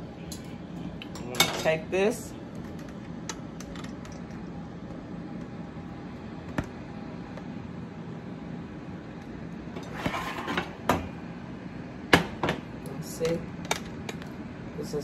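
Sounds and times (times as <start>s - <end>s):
steady low hum: 0.0s - 15.0s
plate scraping across cooktop: 9.8s - 11.1s.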